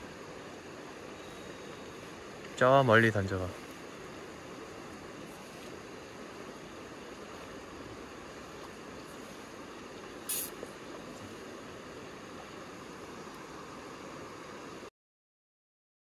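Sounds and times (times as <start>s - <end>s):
river rushing: 0.0s - 14.9s.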